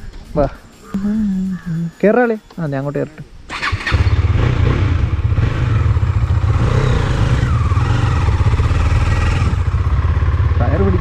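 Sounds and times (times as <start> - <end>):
motorcycle engine rumbling: 3.1 - 11.0.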